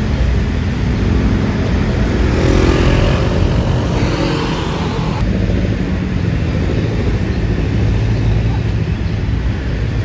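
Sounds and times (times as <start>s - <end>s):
vehicle engine passing: 0.0s - 8.3s
low traffic rumble: 0.0s - 10.0s.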